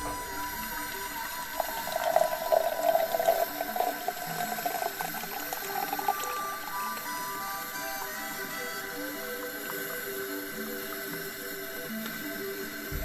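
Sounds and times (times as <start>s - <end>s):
coffee pouring into a cup: 0.0s - 8.1s.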